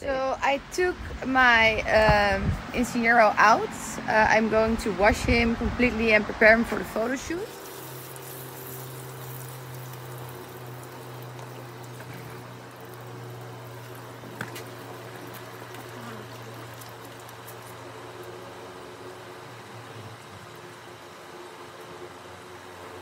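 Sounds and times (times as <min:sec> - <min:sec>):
steady low hum: 0:00.0 - 0:23.0
water pouring from a hose: 0:06.8 - 0:21.2.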